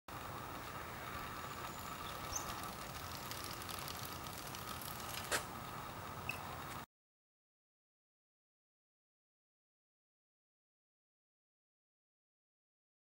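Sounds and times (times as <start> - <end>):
faint outdoor hiss: 0.1 - 6.8.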